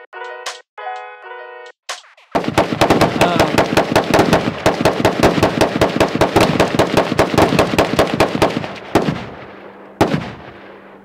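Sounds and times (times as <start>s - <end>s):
rapid gunfire: 2.0s - 10.6s.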